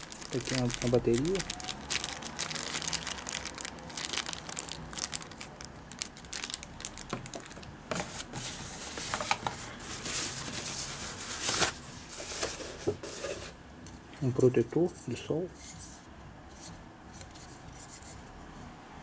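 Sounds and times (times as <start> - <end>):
plastic bag and paper crinkling: 0.0 - 13.3.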